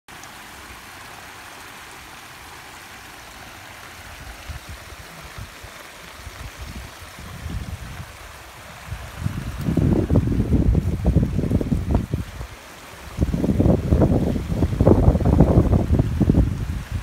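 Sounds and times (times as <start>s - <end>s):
rushing floodwater: 0.1s - 17.0s
wind buffeting microphone: 4.0s - 17.0s.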